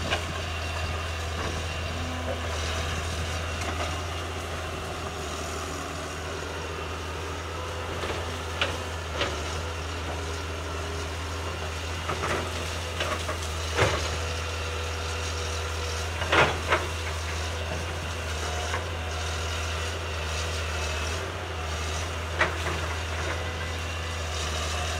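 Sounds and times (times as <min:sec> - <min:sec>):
excavator diesel engine running: 0:00.0 - 0:24.9.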